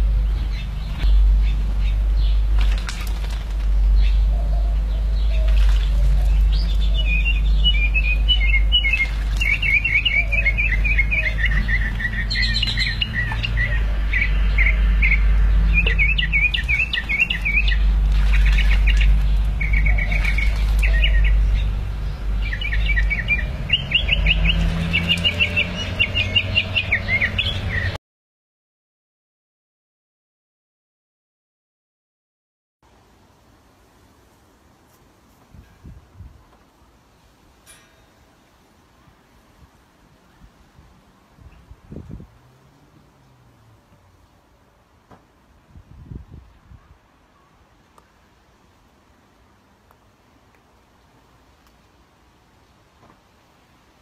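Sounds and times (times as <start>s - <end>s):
steady low rumble: 0.0s - 25.2s
songbirds chirping: 0.0s - 28.0s, 32.9s - 54.0s.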